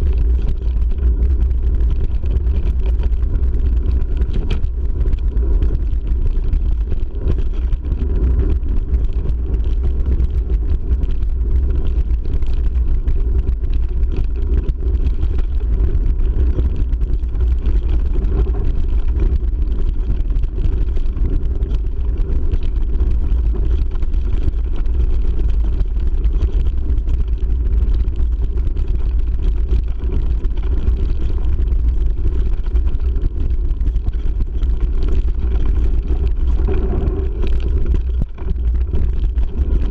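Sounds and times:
wind buffeting microphone: 0:00.0 - 0:24.0, 0:32.7 - 0:39.9.

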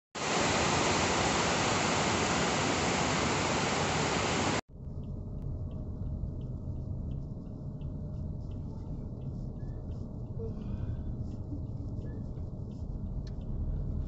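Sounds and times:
heavy rain downpour: 0:00.2 - 0:04.6
car interior rumble: 0:04.8 - 0:14.0
faint ticks: 0:04.8 - 0:14.0.

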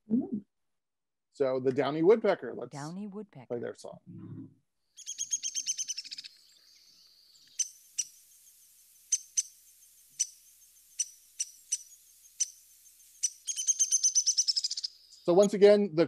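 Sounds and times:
woodpecker whinny call: 0:05.0 - 0:08.3, 0:09.1 - 0:15.5
woodpecker sharp pik calls: 0:05.0 - 0:15.6.

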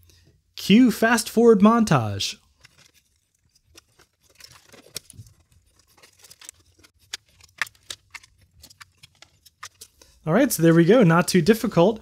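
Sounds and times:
case parts clattering: 0:02.5 - 0:10.0.

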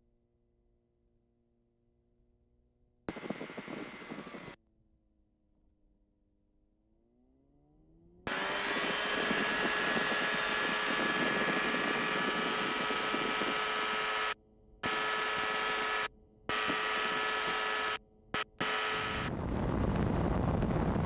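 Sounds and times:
ultralight aircraft engine buzzing: 0:03.1 - 0:04.6, 0:08.3 - 0:21.0.

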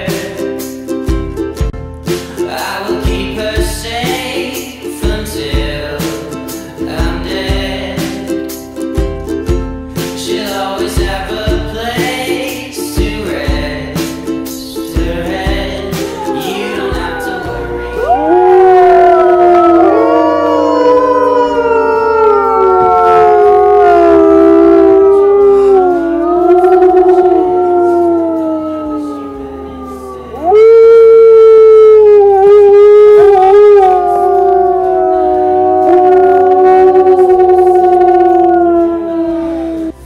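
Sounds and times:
wolves howling: 0:16.2 - 0:40.0.

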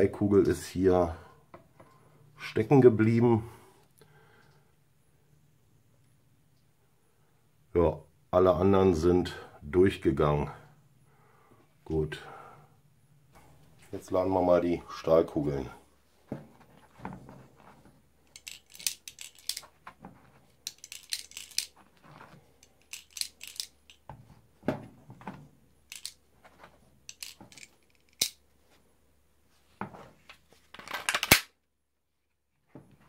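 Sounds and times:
metal balls clicking into magazine: 0:18.2 - 0:19.8, 0:20.6 - 0:21.8, 0:22.6 - 0:24.1, 0:25.9 - 0:26.2, 0:27.1 - 0:28.4, 0:30.8 - 0:31.5
magazine rattle and click: 0:18.2 - 0:24.1, 0:25.8 - 0:28.4, 0:30.7 - 0:31.5.

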